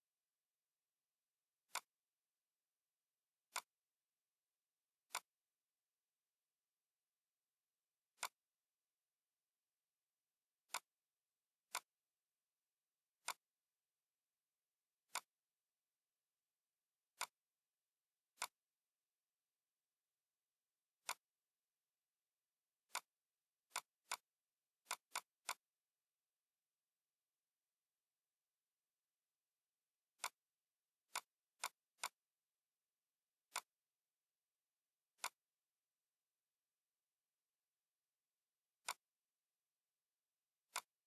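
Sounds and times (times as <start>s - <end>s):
computer mouse button clicks: 33.5s - 33.7s, 35.2s - 35.4s, 38.8s - 39.1s, 40.7s - 41.0s.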